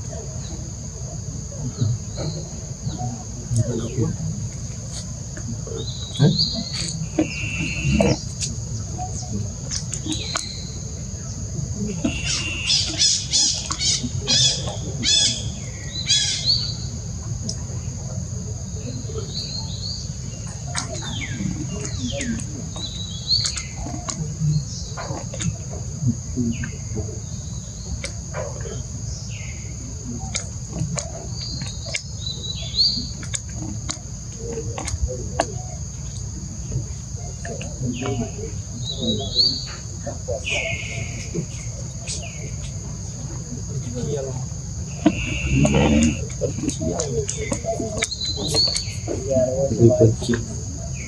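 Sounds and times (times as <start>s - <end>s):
high insect whine: 0.0s - 51.0s
curved chirping calls: 0.1s - 51.0s.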